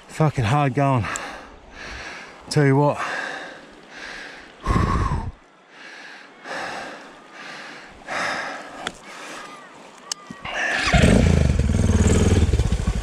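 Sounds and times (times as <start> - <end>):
man panting: 3.0 - 9.3.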